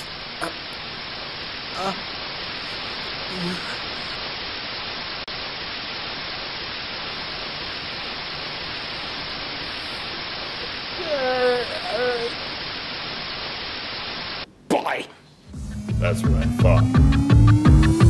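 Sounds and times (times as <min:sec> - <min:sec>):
recording hiss: 0:00.0 - 0:18.0
person vocal sound: 0:01.8 - 0:02.1, 0:02.7 - 0:04.2, 0:11.0 - 0:12.5.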